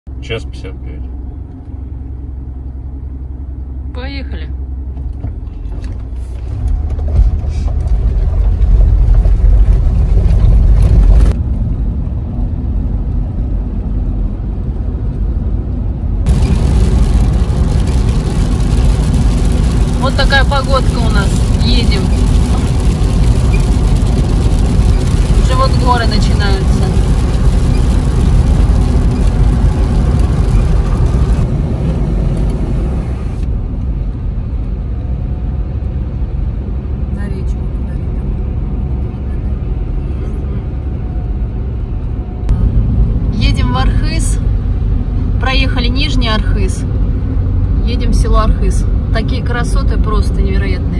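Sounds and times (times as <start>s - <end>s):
car cabin engine and tyre rumble: 0.1s - 50.9s
tyres hissing on wet asphalt: 16.3s - 31.5s.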